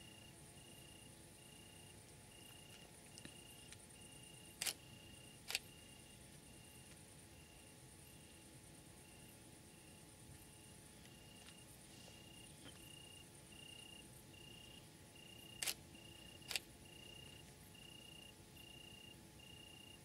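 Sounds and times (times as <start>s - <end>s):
crickets chirping: 0.0s - 20.0s
sharp clicks: 15.5s - 15.8s.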